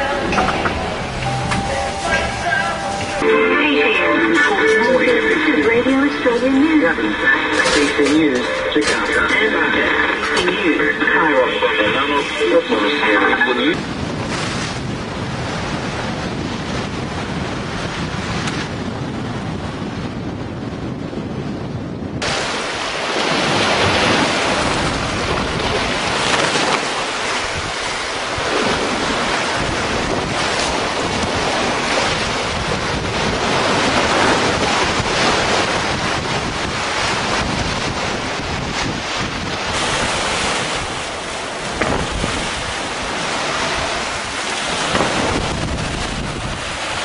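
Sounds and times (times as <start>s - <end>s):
wind buffeting microphone: 0.0s - 3.2s, 13.7s - 47.0s
water rushing along hulls: 0.0s - 47.0s.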